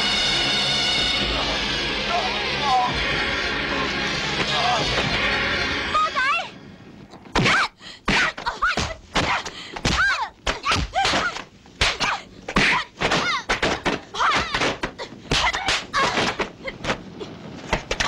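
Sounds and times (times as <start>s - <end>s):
fighters shouting: 4.3s - 6.4s.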